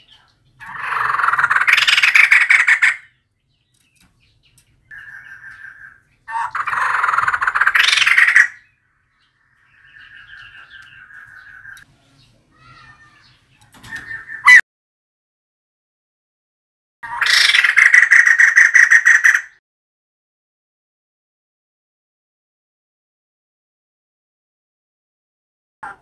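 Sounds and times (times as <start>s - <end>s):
soft bird trilling: 0.0s - 11.8s, 12.5s - 14.6s
bird harsh chattering calls: 0.0s - 11.9s, 12.5s - 14.6s, 17.0s - 19.6s.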